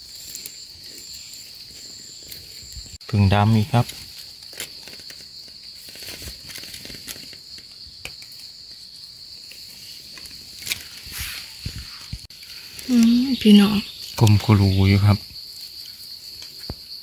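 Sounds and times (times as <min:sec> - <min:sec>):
mushroom handling in leaf litter: 0:00.0 - 0:15.2
insects droning: 0:00.0 - 0:17.0.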